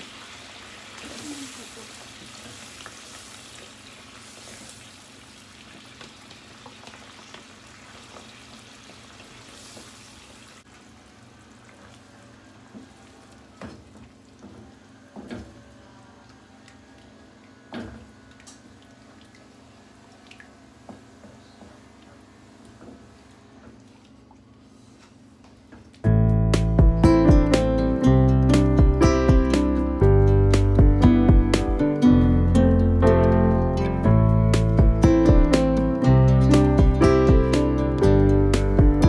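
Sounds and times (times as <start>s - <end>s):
sauce sizzling and bubbling in pan: 0.0s - 15.0s.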